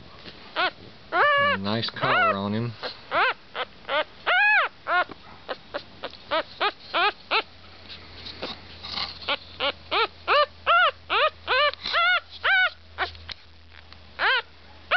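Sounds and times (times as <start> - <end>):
puppy whimpering and crying: 0.6 - 7.5, 9.3 - 13.1, 14.2 - 14.5.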